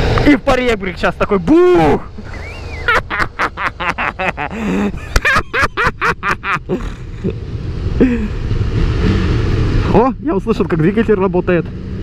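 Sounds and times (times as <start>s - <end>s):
wind: 0.0s - 12.0s
man laughing: 2.1s - 7.4s, 8.0s - 8.4s.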